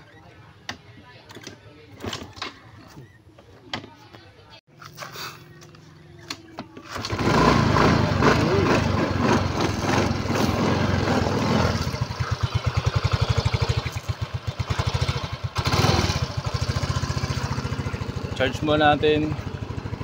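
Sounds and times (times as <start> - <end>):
scooter engine revving and idling: 5.4 - 20.0.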